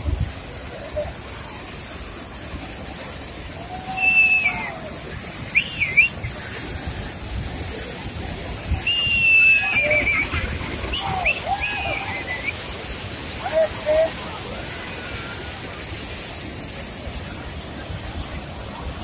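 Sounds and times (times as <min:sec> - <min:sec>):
water rushing down spillway: 0:00.0 - 0:19.0
person whistling: 0:08.8 - 0:10.3.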